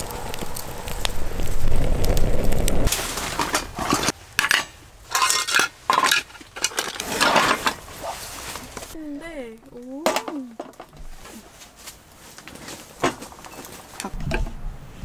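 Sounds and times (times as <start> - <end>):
low rumble: 0.0 - 2.9
dishes and cutlery clattering: 3.4 - 7.8.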